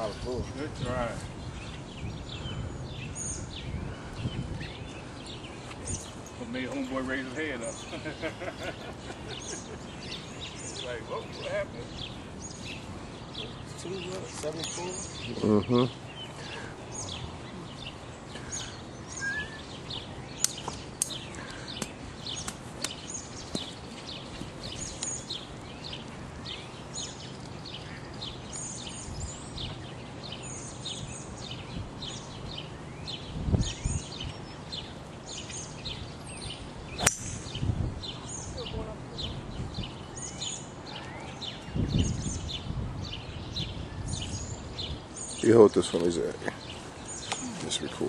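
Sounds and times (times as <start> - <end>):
birds chirping: 0.0 - 48.0
golf driver striking ball: 37.0 - 37.6.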